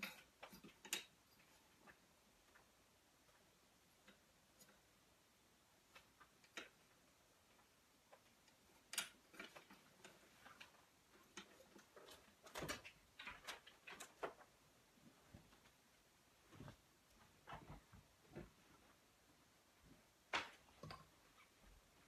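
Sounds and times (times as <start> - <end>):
curtain clicks and rustles: 5.8 - 14.6.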